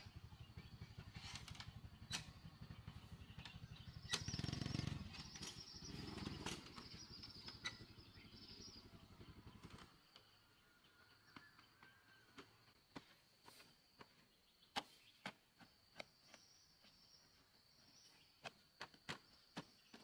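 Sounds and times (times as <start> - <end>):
small motorcycle engine revving: 0.0 - 10.3.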